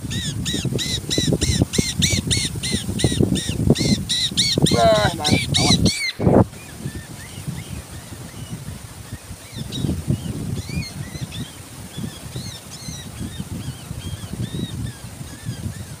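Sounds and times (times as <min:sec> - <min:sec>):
small birds chirping: 0:03.8 - 0:07.6.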